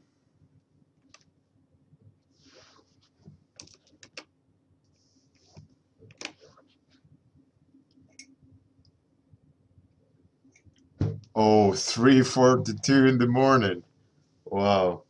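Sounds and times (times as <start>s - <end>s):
soft hisses: 2.3s - 3.2s.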